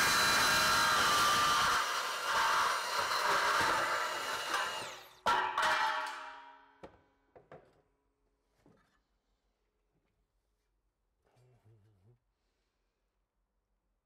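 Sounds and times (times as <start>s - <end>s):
band saw cutting metal: 0.0s - 6.2s.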